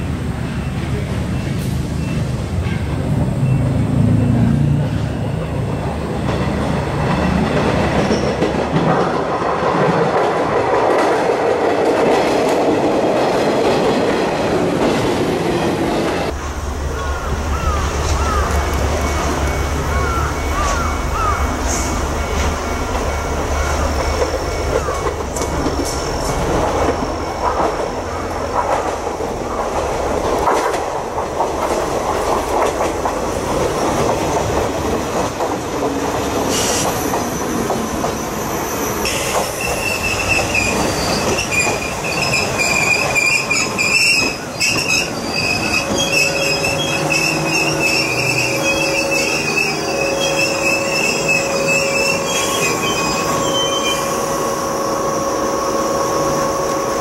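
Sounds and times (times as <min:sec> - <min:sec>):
train wheels clacking over rail joints: 0:06.1 - 0:38.3
high brake squeal: 0:17.5 - 0:28.3, 0:36.5 - 0:57.0.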